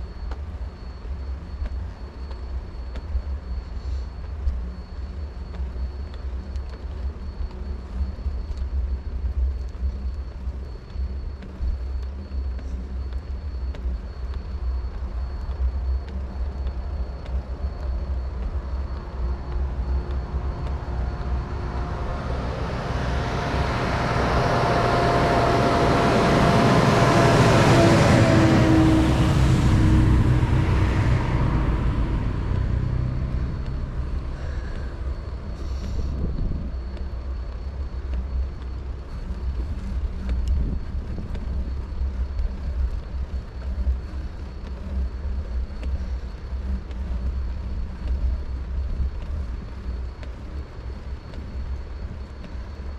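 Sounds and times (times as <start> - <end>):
wind rumble on microphone: 0.0 - 52.9
vehicle passing: 19.0 - 36.1.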